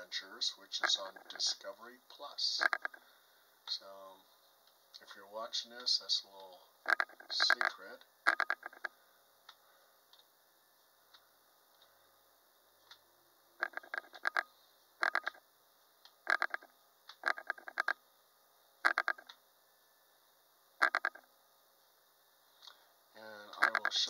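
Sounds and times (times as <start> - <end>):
mouse scroll wheel clicking: 2.6 - 3.0, 6.9 - 7.7, 8.3 - 8.9, 13.6 - 15.4, 16.3 - 18.0, 18.9 - 19.3, 20.8 - 21.2, 23.6 - 23.9.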